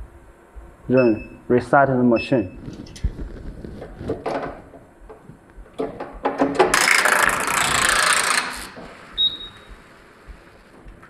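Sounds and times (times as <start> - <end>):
knitting machine carriage rattling: 6.3 - 8.8
short beep: 9.2 - 9.7.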